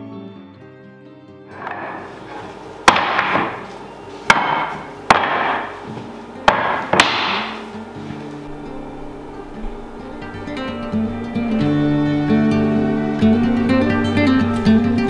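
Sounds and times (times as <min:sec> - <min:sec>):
wood pieces clattering: 0:01.5 - 0:07.8
wooden blanks knocking: 0:01.5 - 0:07.8.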